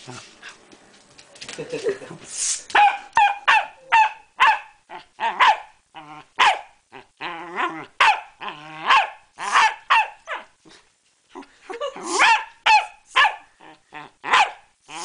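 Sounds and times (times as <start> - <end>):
dog barking: 2.7 - 5.7, 6.4 - 6.8, 8.0 - 10.5, 12.1 - 13.5, 14.3 - 14.7
dog growling: 6.0 - 6.3, 6.9 - 9.6, 13.6 - 14.3.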